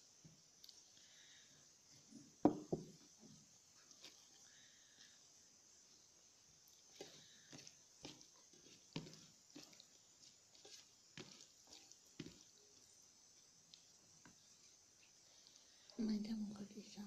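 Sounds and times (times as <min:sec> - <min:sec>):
wet squishes of fingers mashing: 0:06.8 - 0:15.9.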